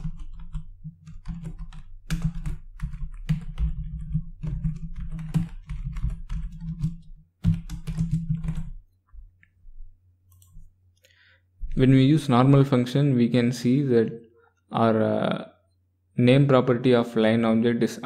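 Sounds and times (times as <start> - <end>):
typing on computer keyboard: 0.0 - 8.8.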